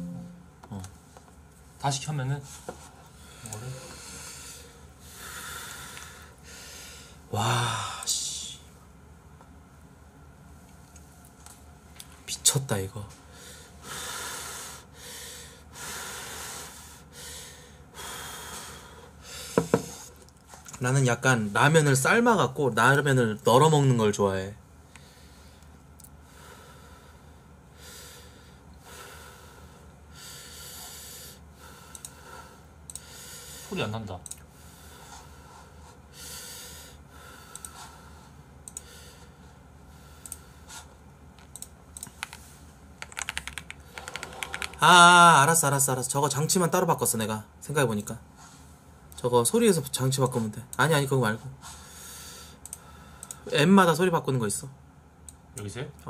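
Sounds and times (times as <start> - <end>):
keyboard and mouse clicks: 41.4 - 42.4, 43.0 - 44.8.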